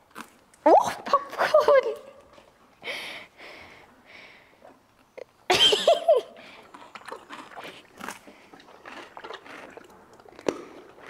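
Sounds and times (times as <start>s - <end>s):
pony crunching a carrot: 0.0s - 0.6s, 6.4s - 11.0s.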